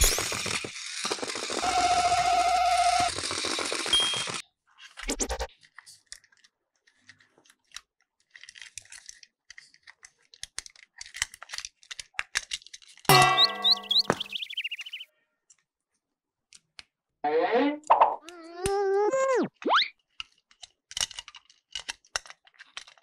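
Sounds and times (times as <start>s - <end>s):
plastic toy clicks and rustling: 0.0s - 4.4s, 5.5s - 13.1s, 20.1s - 23.0s
toy motor whine and gear rattle: 0.0s - 5.5s
music with chirping notes: 13.1s - 15.0s.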